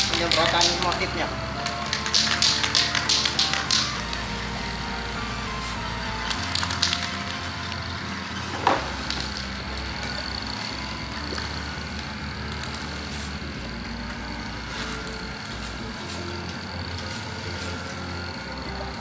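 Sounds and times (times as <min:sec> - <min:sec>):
spray paint can hissing: 0:00.0 - 0:01.0, 0:01.7 - 0:04.1, 0:05.6 - 0:07.3, 0:12.5 - 0:13.5, 0:14.8 - 0:18.5
spray can clicks: 0:01.9 - 0:03.9.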